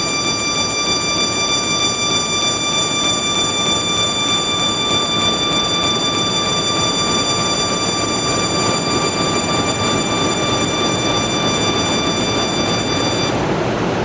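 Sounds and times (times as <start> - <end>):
laser machine high-pitched whine: 0.0 - 13.4
rushing machine noise: 0.0 - 14.0.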